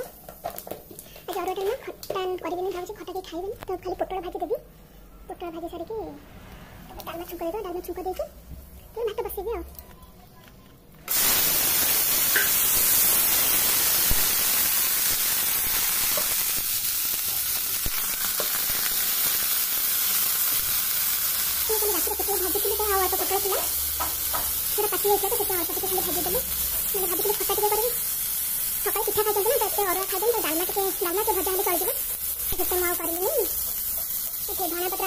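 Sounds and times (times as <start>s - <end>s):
vegetables sizzling in hot oil: 0.0s - 3.1s, 11.1s - 35.0s.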